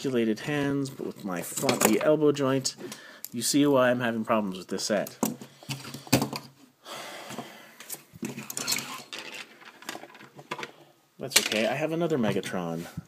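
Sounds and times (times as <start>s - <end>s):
plastic parts clicking and knocking: 1.5s - 2.1s, 5.0s - 6.6s, 8.2s - 12.5s.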